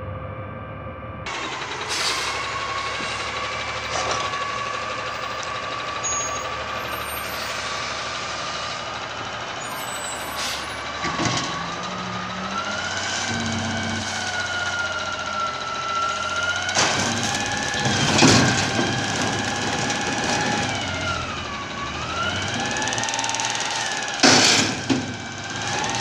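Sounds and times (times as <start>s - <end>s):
garbage truck engine whine: 0.0s - 26.0s
air brake hisses: 1.8s - 4.1s, 10.1s - 10.8s.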